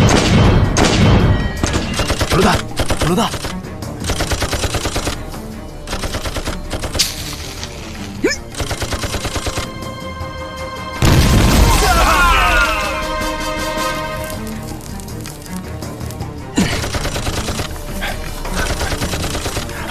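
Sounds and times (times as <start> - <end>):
rapid gunfire: 0.0 - 5.2, 5.8 - 7.2, 8.5 - 9.8, 16.6 - 17.9, 18.5 - 19.9
dramatic background music: 0.0 - 19.9
loud explosion: 11.0 - 12.5.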